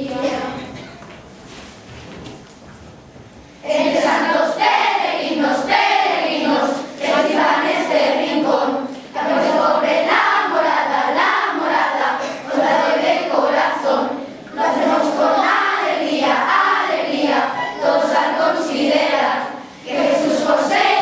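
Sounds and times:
children's choir singing: 0.0 - 1.0, 3.5 - 21.0.

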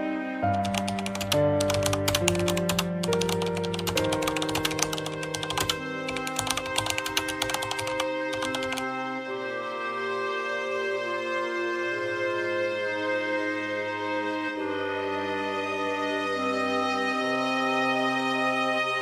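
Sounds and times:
slow background music: 0.0 - 19.0
rapid typing clicks: 0.5 - 8.8.

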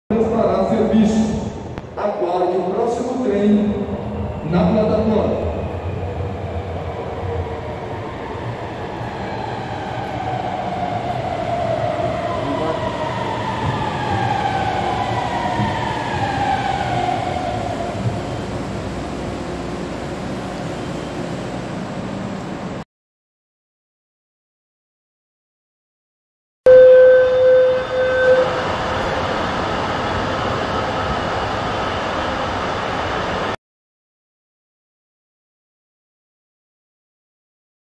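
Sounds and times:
metro train rumble: 0.1 - 22.8, 26.7 - 33.6
held electronic tone: 26.7 - 28.8
train whine falling in pitch: 26.7 - 33.6.

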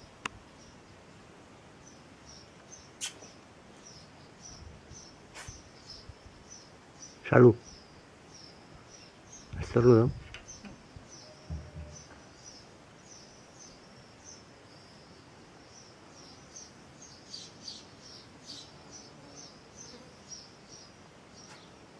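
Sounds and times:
cricket chirping: 1.8 - 21.6
soft low thump: 11.4 - 12.2.

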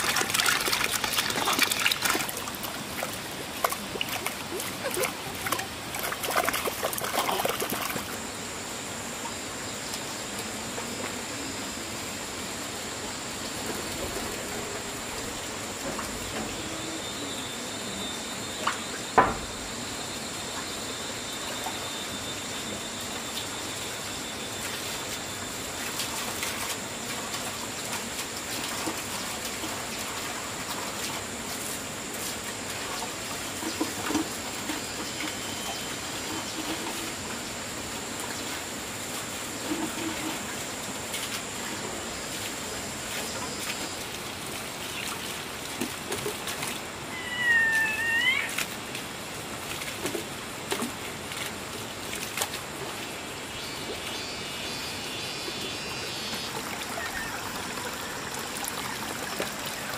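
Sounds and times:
water sloshing: 0.0 - 8.2
water trickling: 0.0 - 8.2, 51.3 - 59.9.

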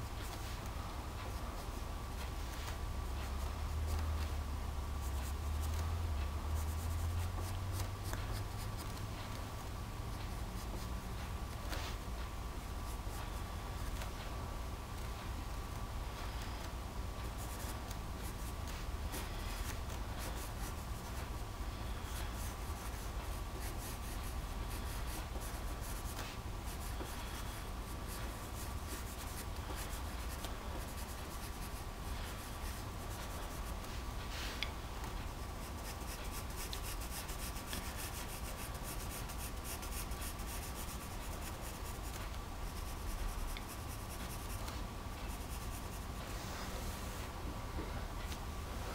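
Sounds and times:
faint electrical hum: 0.0 - 48.9
pencil scratching on paper: 6.5 - 9.3, 17.3 - 34.5, 35.1 - 46.2.

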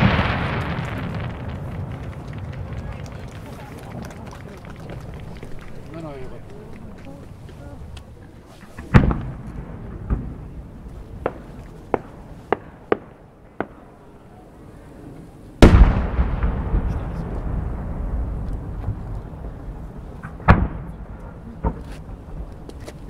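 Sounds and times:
firework shell booming: 0.0 - 3.8, 8.8 - 13.9, 15.6 - 22.8
firework pops: 0.0 - 13.9, 15.6 - 23.0.

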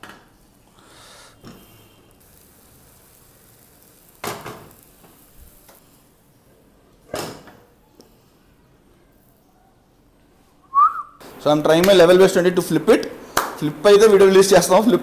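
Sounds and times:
omelette sizzling in a pan: 0.3 - 6.5.

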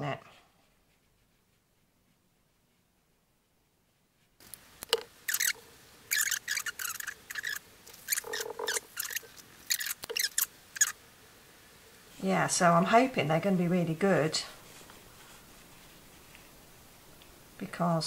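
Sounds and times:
paintbrush scratching on board: 0.5 - 3.0, 4.2 - 11.0, 14.6 - 16.5.

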